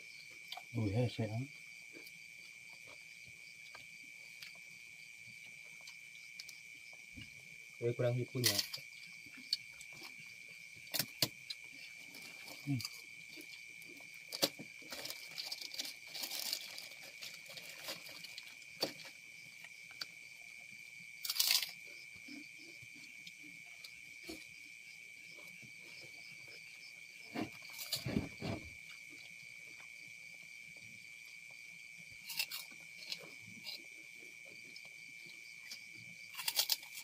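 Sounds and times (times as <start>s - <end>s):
night insects droning: 0.0s - 37.0s
crackers crunching: 12.0s - 19.2s, 21.2s - 21.8s, 32.2s - 33.3s, 36.3s - 37.0s
plastic bag rustling: 14.8s - 19.0s
thumps: 27.3s - 28.7s.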